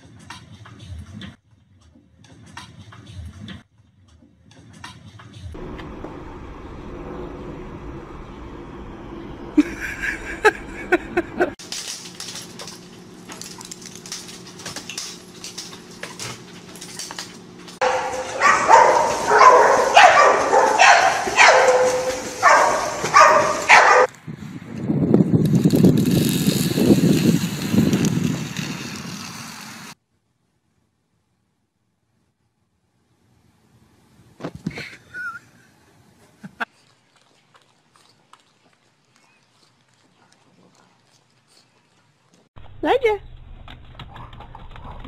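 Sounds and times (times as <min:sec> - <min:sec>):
dog barking: 0:17.8 - 0:24.1.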